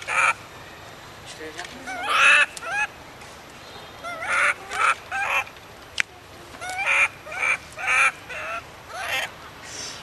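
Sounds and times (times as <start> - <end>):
young monkey squealing: 1.8 - 3.0, 4.0 - 5.5, 6.6 - 9.3.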